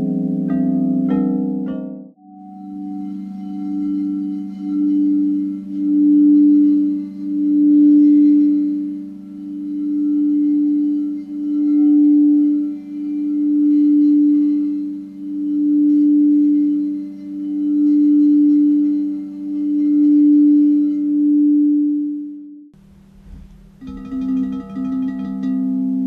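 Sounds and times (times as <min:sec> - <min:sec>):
singing bowl ringing: 0:00.0 - 0:22.6, 0:23.5 - 0:26.0.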